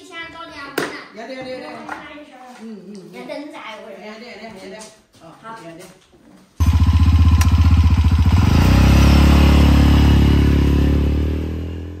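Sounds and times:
motorcycle engine running: 0:06.6 - 0:12.0.

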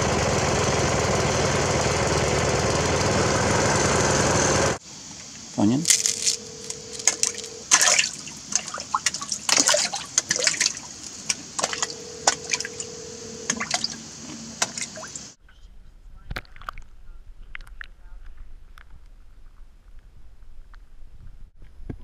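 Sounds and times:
fish splashing at water surface: 0:05.9 - 0:15.4.

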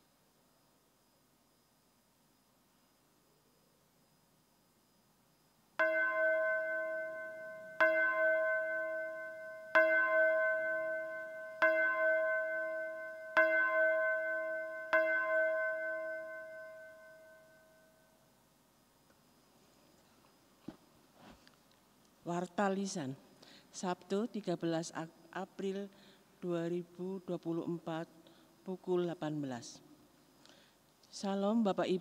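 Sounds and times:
bell ringing: 0:05.8 - 0:17.8.

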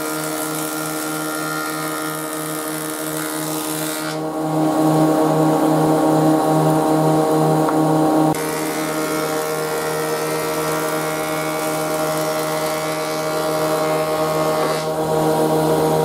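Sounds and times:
cutter block shaving wood: 0:00.0 - 0:04.2, 0:08.4 - 0:15.5
thickness planer motor whine: 0:00.0 - 0:16.0.

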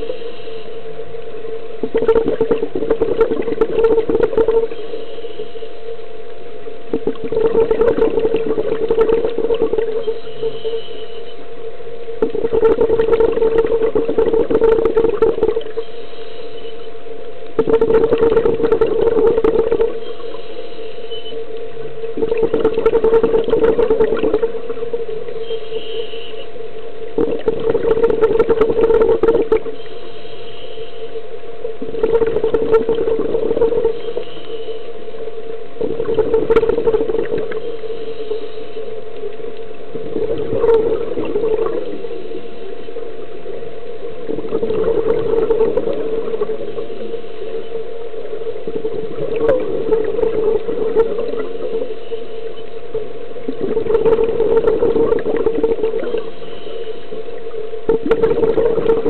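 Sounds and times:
steady hum: 0:00.0 - 0:59.0
exhaled bubbles surging: 0:01.6 - 0:05.1, 0:06.8 - 0:10.9, 0:11.9 - 0:16.0, 0:17.5 - 0:20.6, 0:21.4 - 0:25.6, 0:26.7 - 0:29.9, 0:31.1 - 0:59.0
regulator breathing underwater: 0:35.8 - 0:39.1, 0:53.5 - 0:59.0.

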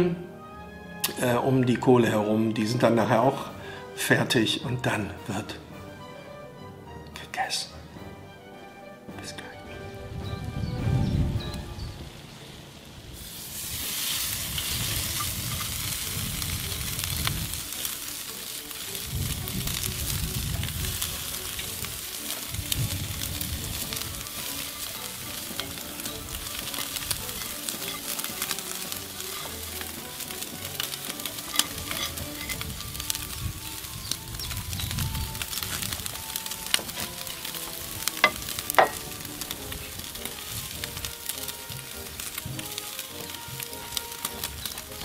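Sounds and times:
steaks sizzling on a grill: 0:12.3 - 0:45.0.

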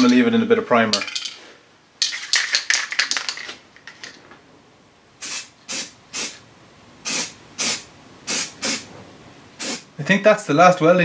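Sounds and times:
aerosol can ball rattling: 0:02.0 - 0:04.0
spray paint hiss: 0:05.2 - 0:06.4, 0:07.0 - 0:09.0, 0:09.6 - 0:09.9.

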